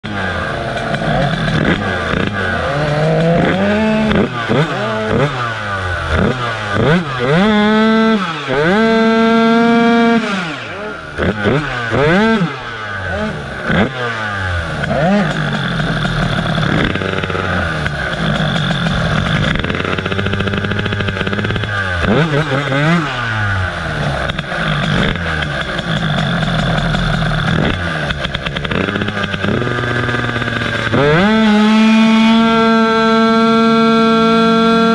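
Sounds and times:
two-stroke scooter engine revving: 0.0s - 34.9s.

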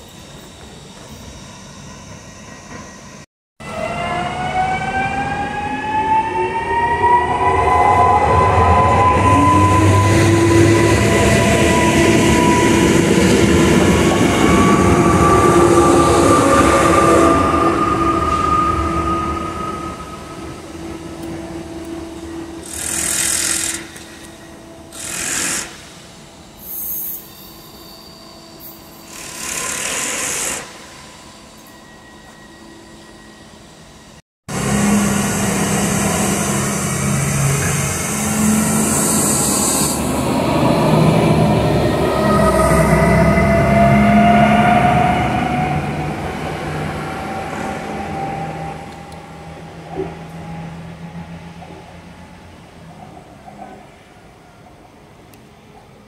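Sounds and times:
electric train motor whine: 28.6s - 51.7s.

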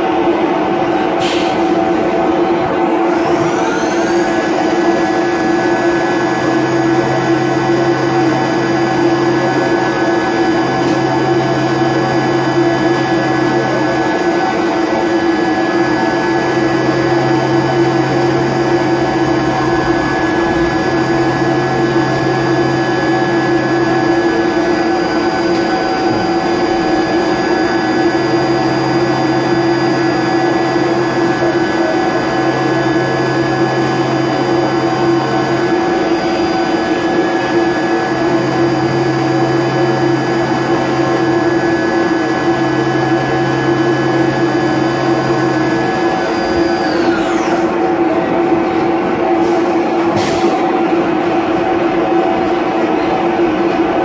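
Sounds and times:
mill spindle and cutting whine: 0.0s - 54.0s
low hum: 5.6s - 47.6s.

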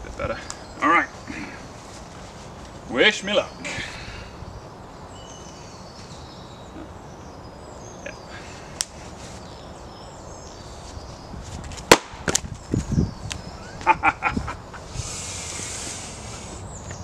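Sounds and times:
axe striking wood: 11.9s - 12.4s.

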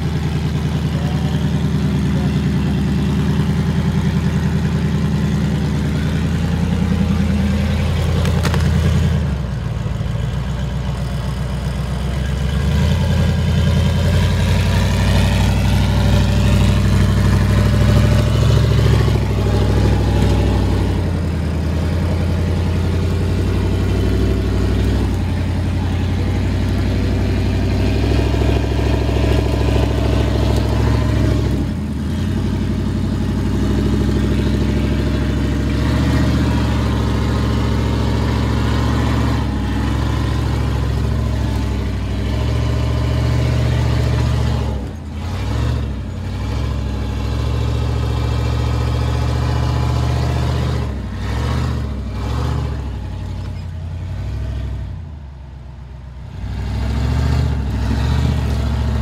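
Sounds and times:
truck engine revving under throttle: 0.0s - 10.2s, 10.9s - 55.3s, 56.2s - 59.0s.

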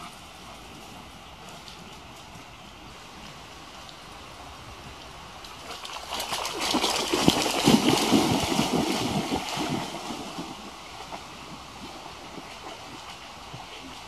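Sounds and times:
steady low hiss: 0.0s - 5.8s
dogs splashing through water: 5.3s - 14.0s.

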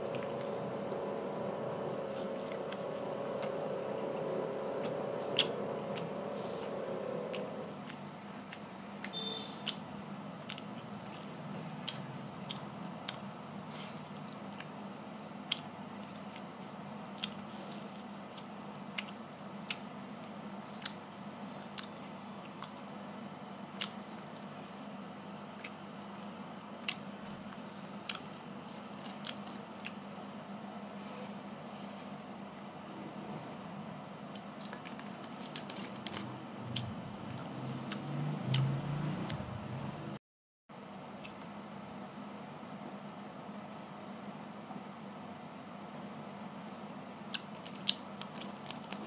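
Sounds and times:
person chewing food: 0.0s - 30.2s, 34.3s - 39.4s, 46.7s - 49.0s
faint hum: 0.0s - 49.0s.

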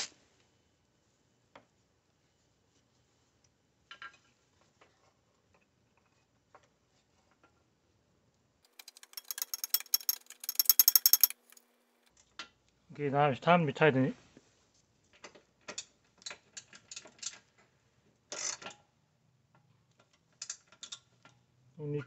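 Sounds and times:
ratchet wrench clicking rapidly: 8.7s - 11.6s.

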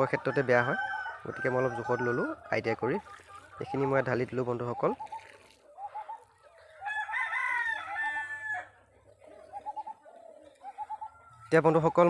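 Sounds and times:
hens clucking: 0.0s - 12.0s
rooster crowing: 0.2s - 2.3s, 6.8s - 8.8s.

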